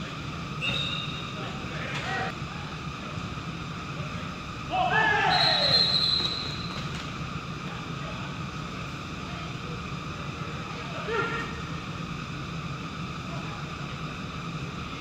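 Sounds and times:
indoor arena background hum: 0.0 - 15.0
player shouting: 4.7 - 5.8.

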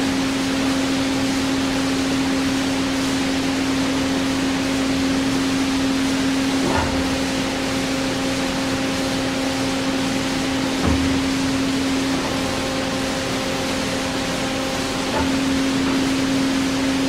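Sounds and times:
band saw humming: 6.4 - 17.0.

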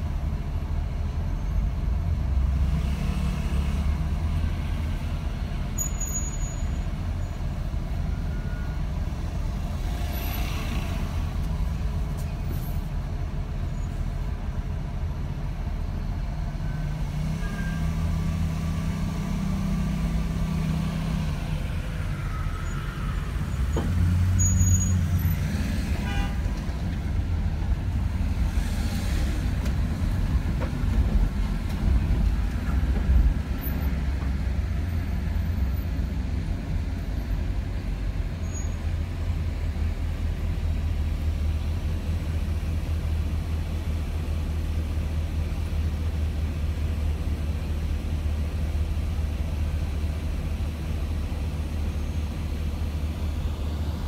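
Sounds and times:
traffic engine rumble: 0.0 - 54.0.

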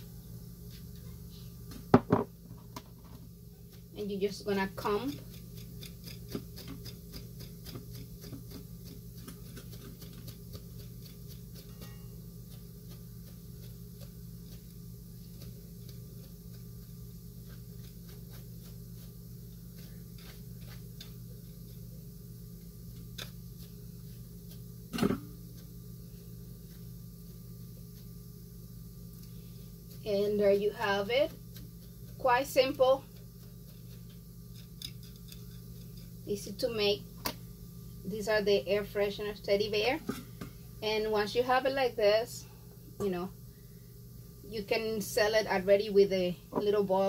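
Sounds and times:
steady low hum: 0.0 - 47.0
comb scratching through fur: 12.5 - 22.0, 29.8 - 36.2.

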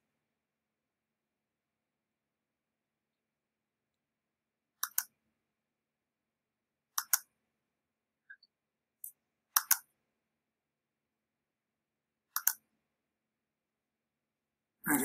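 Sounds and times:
computer mouse double clicks: 9.6 - 9.9.

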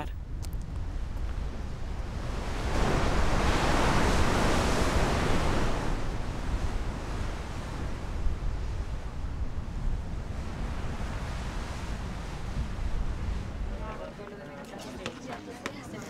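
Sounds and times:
wind rumble on microphone: 0.0 - 14.2
sea surf breaking on rocks: 2.1 - 9.2.

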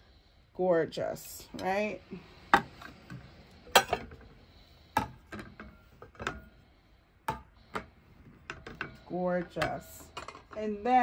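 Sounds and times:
plates clinking on chargers: 2.5 - 4.2, 7.3 - 11.0.

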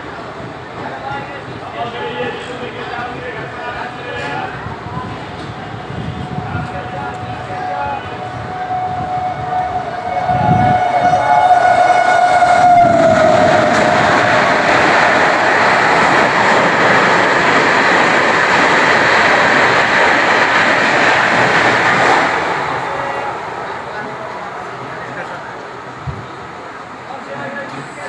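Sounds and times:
rush of train coaches passing: 0.0 - 28.0
locomotive horn: 7.1 - 13.9.

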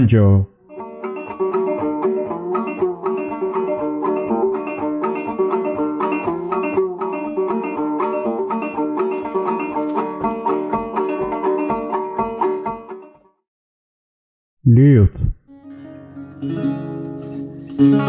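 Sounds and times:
banjo plucking: 0.7 - 13.2, 15.6 - 18.0.

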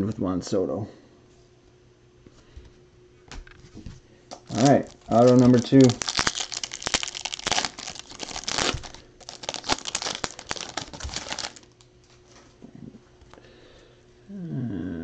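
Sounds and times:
foil wrapper tearing and crinkling: 4.3 - 11.9.

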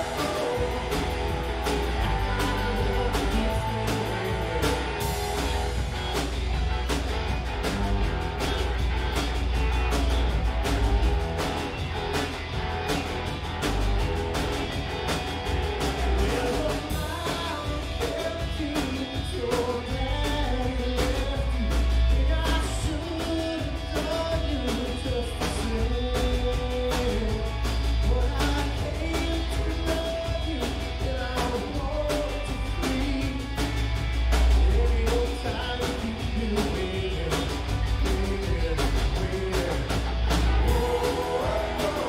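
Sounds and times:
person singing: 0.0 - 5.2, 16.2 - 33.4, 40.7 - 42.0
drum kit beat: 0.0 - 42.0
guitar: 0.0 - 42.0.

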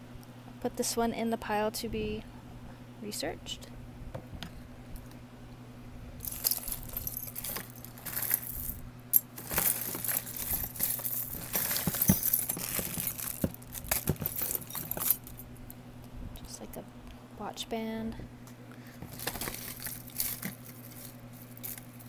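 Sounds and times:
rummaging rustles: 6.2 - 15.4, 18.9 - 22.0
jewelry jingling and clinking: 6.2 - 15.6, 19.1 - 22.0.

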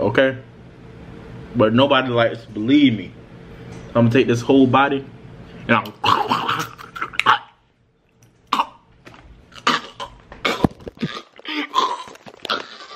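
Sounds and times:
man coughing: 6.0 - 7.0, 9.7 - 12.0.

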